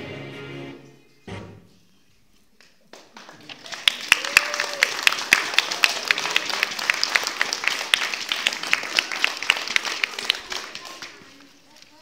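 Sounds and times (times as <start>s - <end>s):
small group applauding: 2.6s - 12.0s.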